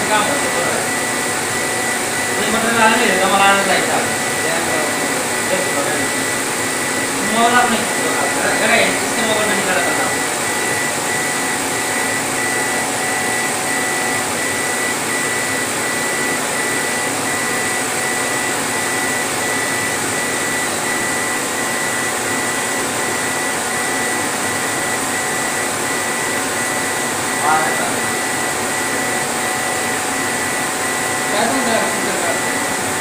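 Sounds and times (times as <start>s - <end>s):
pulsing high tone: 0.0s - 22.1s
laser engraver blower hiss: 0.0s - 33.0s.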